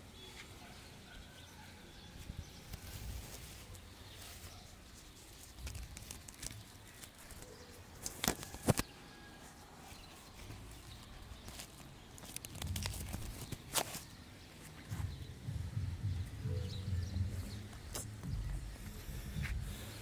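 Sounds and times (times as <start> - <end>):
handling rustle of net and feathers: 2.1 - 15.1.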